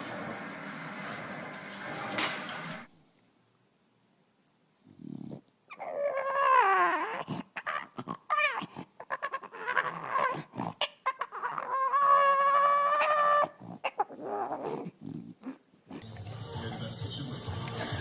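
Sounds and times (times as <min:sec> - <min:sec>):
dog yowling and grumbling: 0:05.0 - 0:16.0
dog howling: 0:05.8 - 0:10.4, 0:11.1 - 0:14.8.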